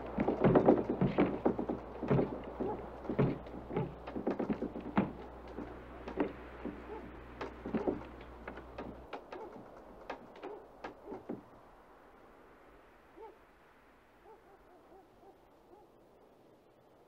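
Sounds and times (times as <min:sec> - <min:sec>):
wooden door rattling in wind: 0:00.0 - 0:11.8
low steady hum: 0:00.0 - 0:17.0.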